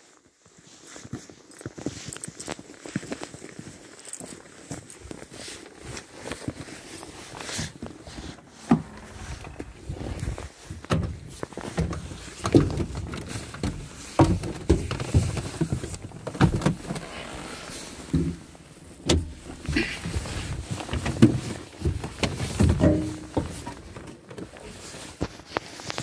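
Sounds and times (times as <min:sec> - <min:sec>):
footsteps in snow: 0:00.0 - 0:12.4, 0:16.8 - 0:23.7, 0:24.4 - 0:26.0
knocks and thumps climbing in: 0:07.8 - 0:24.6.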